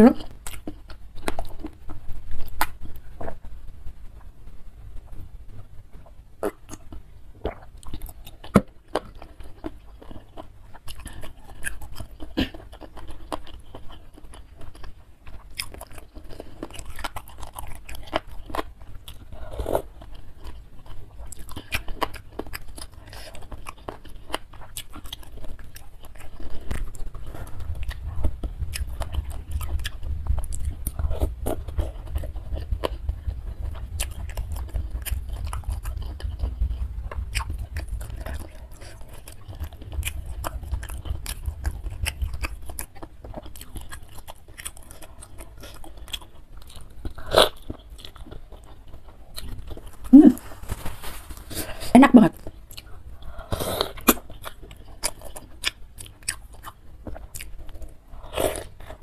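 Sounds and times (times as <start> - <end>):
food crunching: 0.0 - 59.0
wet chewing and biting: 0.2 - 3.5, 6.4 - 51.8, 52.4 - 59.0
low rumble: 26.7 - 43.8.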